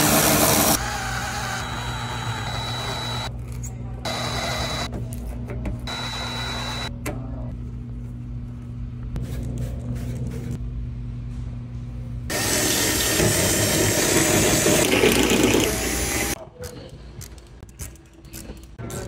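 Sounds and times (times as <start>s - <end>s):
cordless drill motor whir: 0.2s - 3.3s.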